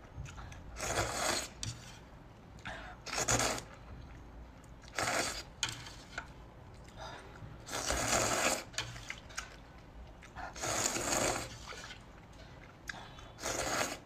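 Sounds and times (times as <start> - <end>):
person slurping noodles: 0.8 - 1.9, 2.9 - 3.8, 4.8 - 6.2, 7.6 - 9.2, 10.4 - 12.0, 13.4 - 14.0.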